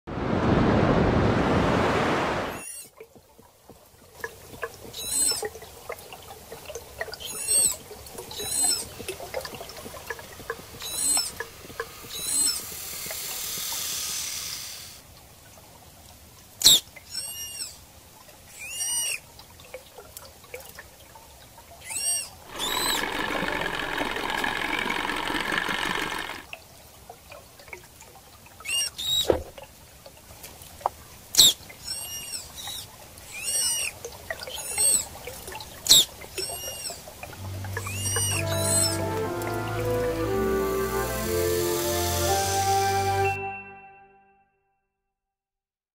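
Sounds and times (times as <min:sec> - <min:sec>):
rushing noise: 0:00.1 - 0:02.6
manatee chirps and squeaks: 0:02.6 - 0:02.9, 0:04.9 - 0:05.5, 0:07.2 - 0:09.0, 0:10.8 - 0:11.4, 0:12.0 - 0:12.8, 0:16.6 - 0:17.8, 0:18.5 - 0:19.2, 0:21.8 - 0:23.2, 0:28.6 - 0:29.3, 0:31.4 - 0:35.1, 0:35.8 - 0:37.0, 0:37.7 - 0:39.1
hiss: 0:10.8 - 0:15.0, 0:40.3 - 0:43.2.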